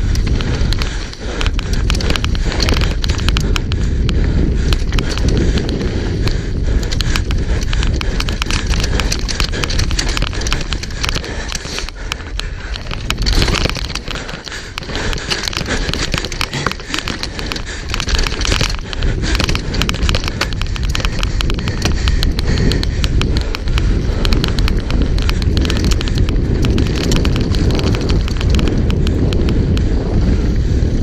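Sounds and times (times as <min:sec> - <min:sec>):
bike chain and frame rattling: 0:00.0 - 0:31.0
wind rumbling on microphone: 0:00.0 - 0:31.0
tyres crunching over stones: 0:06.8 - 0:28.8.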